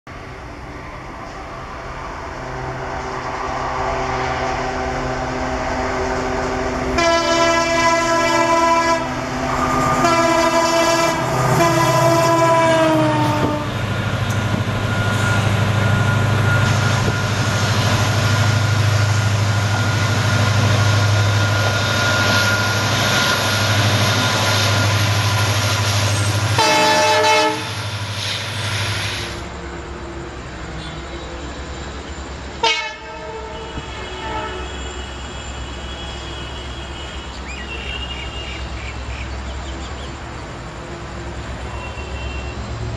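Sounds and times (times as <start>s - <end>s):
diesel engine drone: 0.1s - 32.6s
train rumbling by: 0.1s - 42.9s
locomotive horn blasting: 6.9s - 13.8s, 26.4s - 27.8s, 32.6s - 38.6s, 41.6s - 42.6s.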